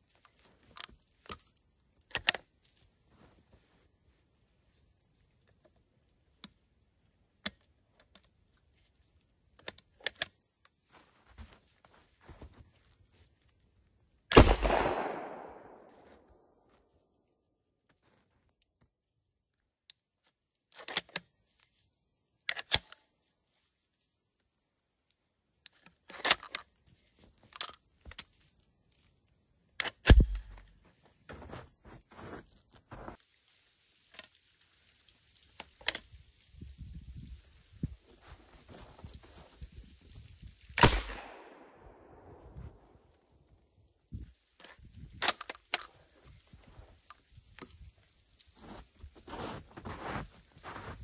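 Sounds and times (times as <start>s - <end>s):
shotgun mechanical clicks: 14.3s - 15.9s, 29.8s - 30.6s, 40.8s - 41.6s.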